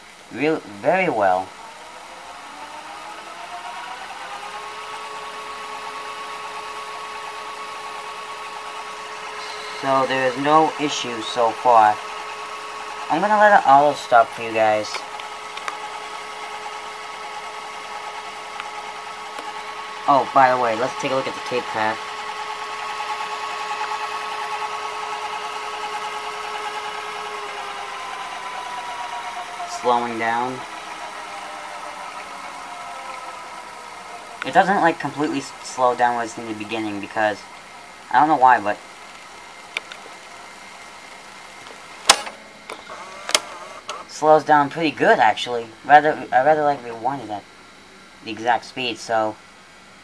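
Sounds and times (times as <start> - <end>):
tape player rewinding: 0.0 - 49.3.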